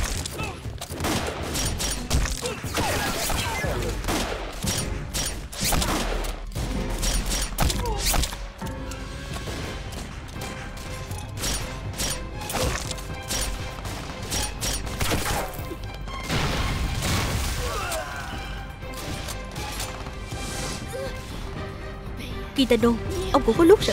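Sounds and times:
dramatic background music: 0.0s - 23.9s
pistol shots: 0.9s - 8.5s.

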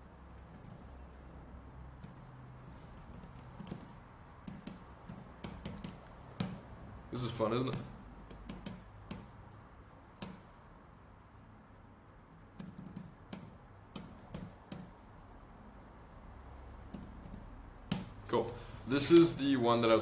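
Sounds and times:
keyboard and mouse clicking: 0.3s - 1.0s, 2.0s - 2.3s, 3.0s - 6.6s, 7.7s - 9.6s, 12.6s - 14.9s.

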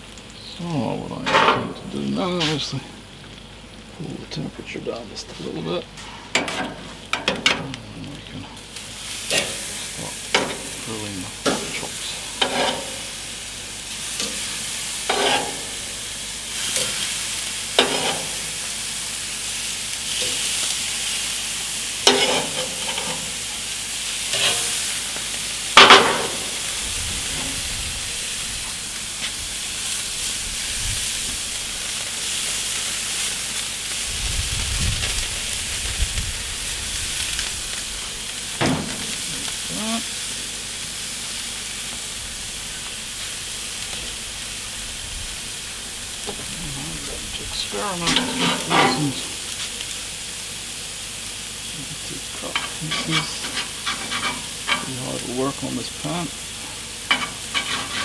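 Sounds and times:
meat sizzling on a grill: 0.0s - 58.0s
metal tongs clacking on grate: 6.0s - 7.8s, 9.3s - 9.6s, 10.3s - 10.8s, 12.4s - 13.0s, 15.1s - 15.8s, 17.8s - 18.4s, 22.0s - 23.3s, 48.0s - 49.2s, 52.5s - 55.0s, 57.1s - 58.0s.

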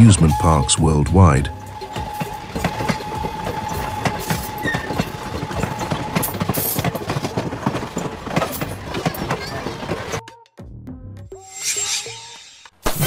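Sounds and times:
train wheels clattering on rails: 0.0s - 10.2s.

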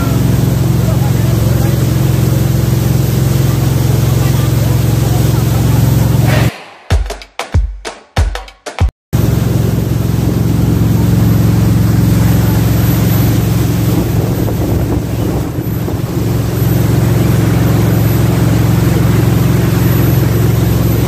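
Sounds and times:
boat engine drone: 0.0s - 6.5s, 9.2s - 21.0s
water rushing: 0.0s - 6.5s, 9.2s - 21.0s.

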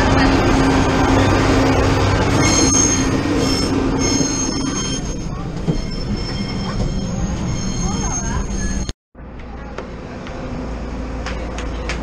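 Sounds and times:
steel wheels squealing on rails: 0.2s - 8.9s.

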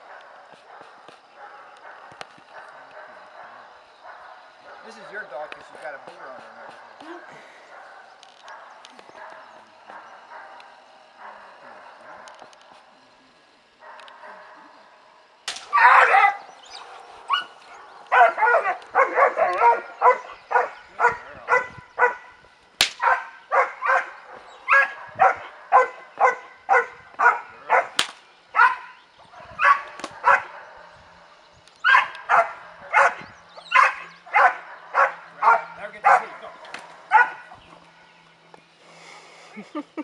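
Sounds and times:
puppy barking: 0.0s - 12.8s, 13.8s - 14.8s, 15.7s - 22.4s, 23.0s - 31.0s, 31.8s - 37.9s
sharp cracks: 15.4s - 16.2s, 22.8s - 23.4s, 27.9s - 28.4s, 29.8s - 30.2s.

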